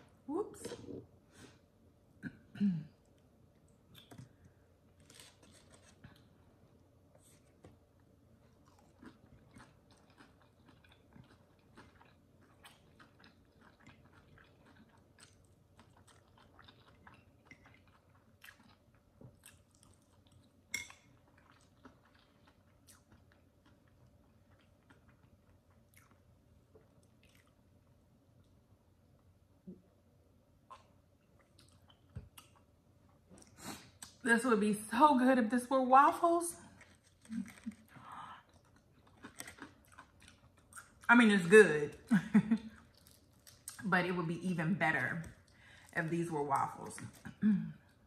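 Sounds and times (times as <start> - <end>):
faint steady hum: 0.0 - 48.0
close-up chewing: 3.5 - 28.6, 30.7 - 34.2, 36.6 - 41.1, 41.9 - 43.9.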